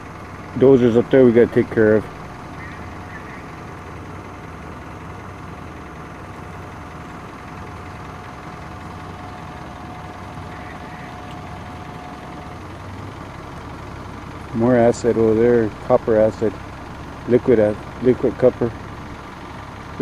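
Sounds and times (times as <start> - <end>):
thin steady whine: 0.0 - 19.3
truck engine running: 0.0 - 20.0.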